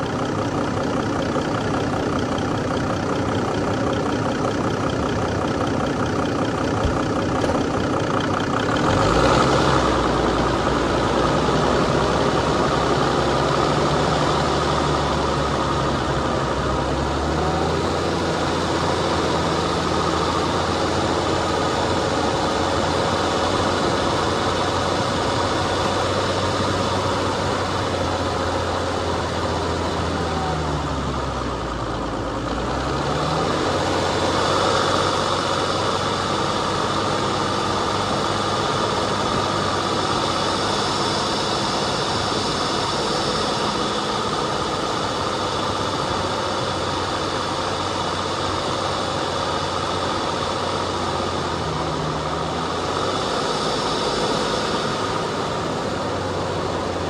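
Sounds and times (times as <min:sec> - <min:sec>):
vehicle engine running: 0:00.0 - 0:57.0
steady wash of noise: 0:33.5 - 0:57.0.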